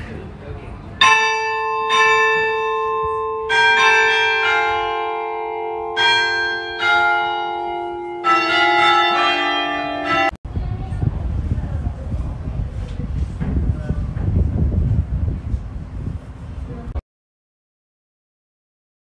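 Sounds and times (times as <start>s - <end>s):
church bells ringing: 1.0s - 10.4s.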